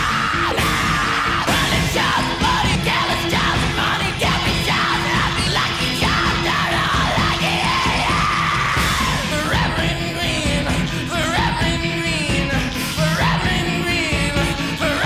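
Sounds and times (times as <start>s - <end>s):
man screaming vocals: 0.0s - 11.7s
rock band playing: 0.0s - 15.0s.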